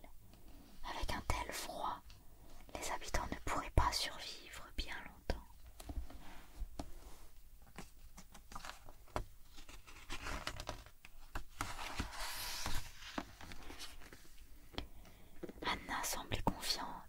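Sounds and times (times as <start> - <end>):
page turning swish: 11.6 - 14.2.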